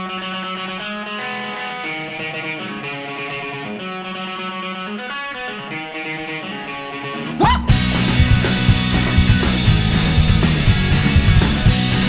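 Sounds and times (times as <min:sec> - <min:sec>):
electric guitar chords: 0:00.0 - 0:12.0.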